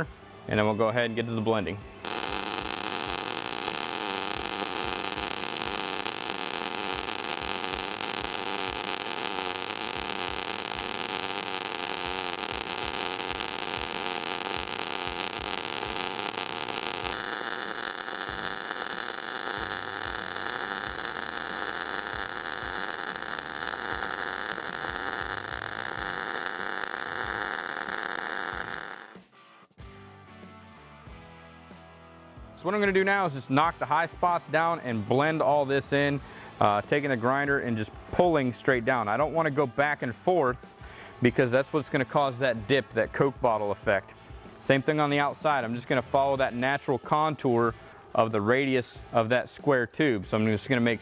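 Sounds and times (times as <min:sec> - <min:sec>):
welding arc hissing and crackling: 0:02.0 - 0:29.2.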